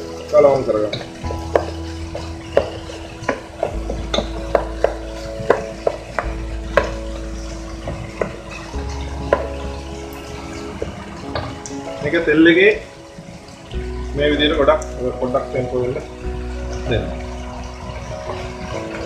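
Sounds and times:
food sizzling in pan: 0.0s - 15.0s
wooden spoon knocking on pan: 0.9s - 9.7s.

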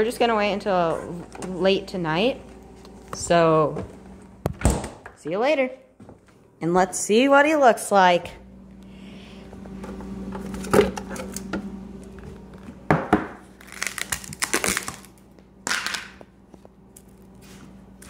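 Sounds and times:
steady low hum: 0.0s - 18.0s
plastic and ice crackling: 13.5s - 17.4s.

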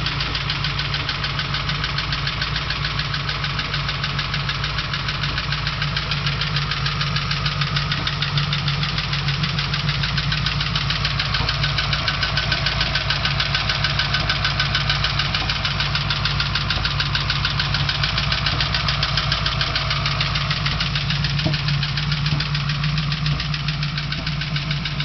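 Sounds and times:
engine idling with ticking: 0.0s - 25.0s.

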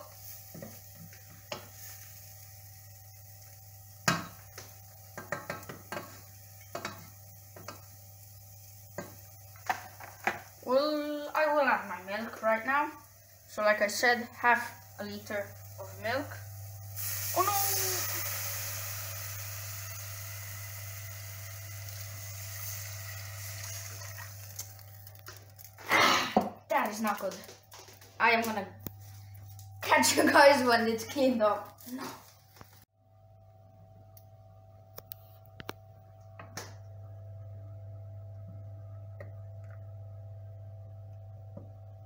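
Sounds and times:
milk sizzling in hot pan: 0.0s - 32.9s
faint steady hum: 0.0s - 42.0s.

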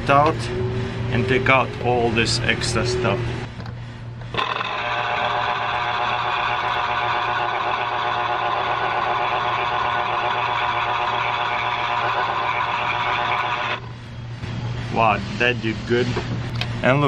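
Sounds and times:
electric juicer motor whirring: 4.3s - 13.8s.

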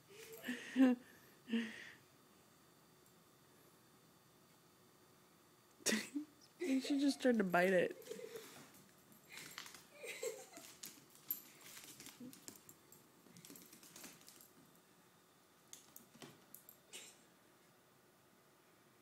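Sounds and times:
dog claws clicking on floor: 8.0s - 14.6s, 15.7s - 16.8s.

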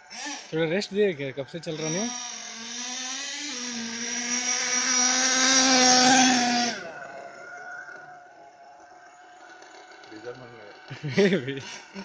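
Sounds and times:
model car nitro engine revving: 0.0s - 12.0s
faint whine: 3.5s - 11.9s.

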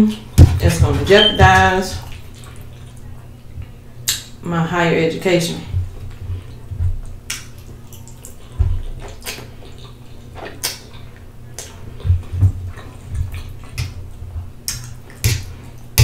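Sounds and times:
wet chewing and slurping: 2.0s - 4.3s, 5.7s - 16.0s
mouth clicks and smacks: 3.6s - 4.4s, 6.0s - 16.0s.

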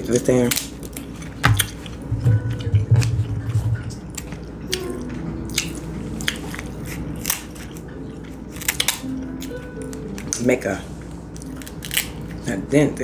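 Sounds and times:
crab shells cracking: 0.1s - 3.1s, 5.5s - 10.5s, 11.3s - 12.4s.

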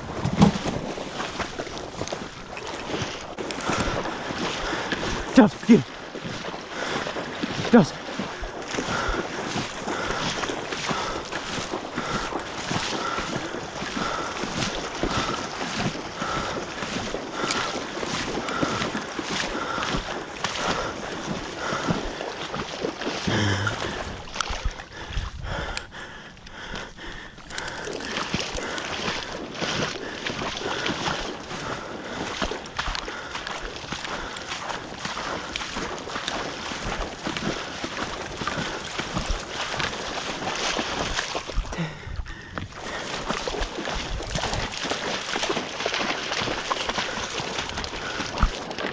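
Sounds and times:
splashing through shallow water: 0.0s - 48.9s
wind buffeting microphone: 23.3s - 33.4s, 34.9s - 45.1s.

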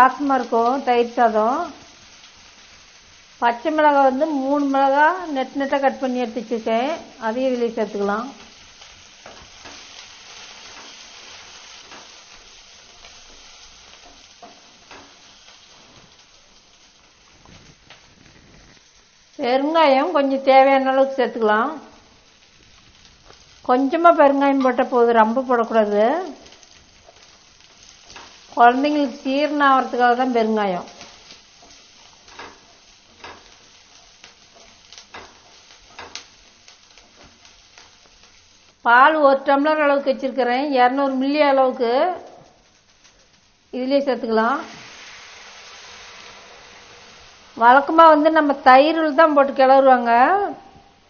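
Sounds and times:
vegetables sizzling in hot oil: 0.0s - 51.0s
wooden spatula scraping a pan: 44.6s - 47.6s.

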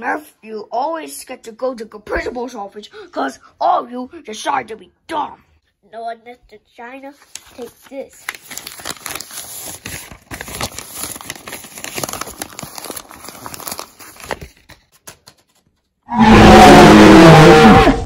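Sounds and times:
paper crinkling: 7.1s - 15.9s.

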